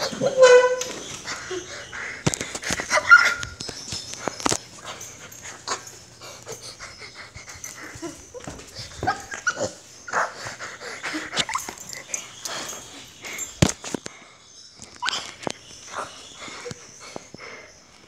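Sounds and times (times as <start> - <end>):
dog whimpering: 0.0 - 13.5.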